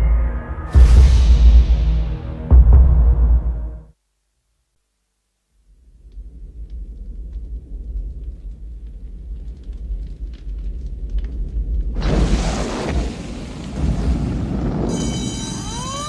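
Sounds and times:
deep fire rumble with crackles: 5.8s - 15.6s
fireball bursting rush: 11.9s - 15.6s.

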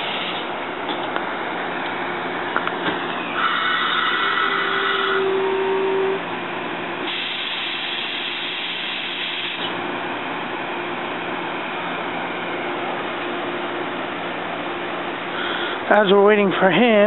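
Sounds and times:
train equipment hum: 0.0s - 17.0s
held tone: 3.2s - 6.3s
air hiss: 7.1s - 9.7s.

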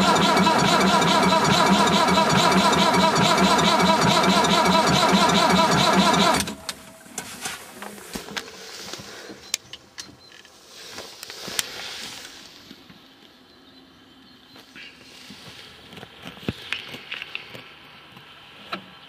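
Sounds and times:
tractor diesel engine running: 0.0s - 7.2s.

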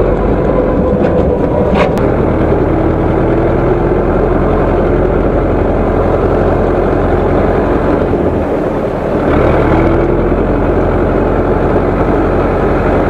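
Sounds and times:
tractor diesel engine running: 0.0s - 13.0s.

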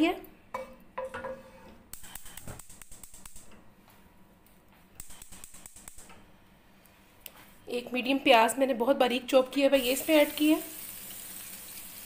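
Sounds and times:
oil crackling and popping: 10.3s - 12.0s.

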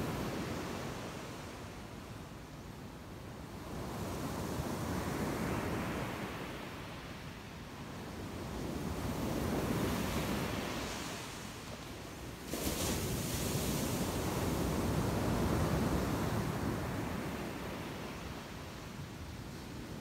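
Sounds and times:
ocean waves breaking on beach: 7.8s - 20.0s.

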